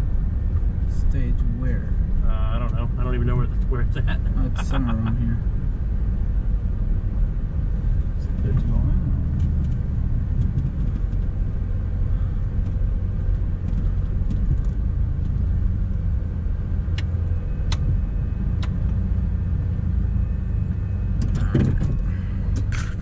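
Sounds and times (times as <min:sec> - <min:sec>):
engine and road rumble: 0:00.0 - 0:23.0.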